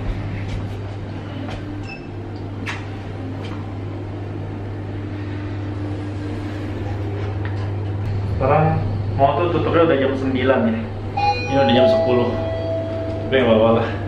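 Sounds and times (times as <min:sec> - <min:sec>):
elevator hum: 0:00.0 - 0:14.0
short electronic beep: 0:11.2 - 0:13.3.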